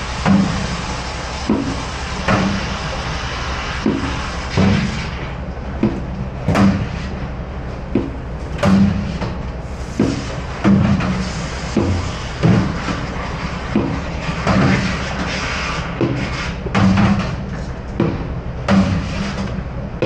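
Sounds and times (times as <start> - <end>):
water spraying in sink: 0.0 - 5.4, 9.0 - 17.4.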